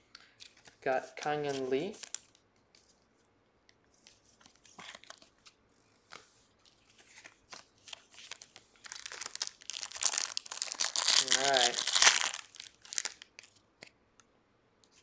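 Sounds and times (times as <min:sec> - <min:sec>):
foil wrappers crinkling: 0:08.2 - 0:13.6.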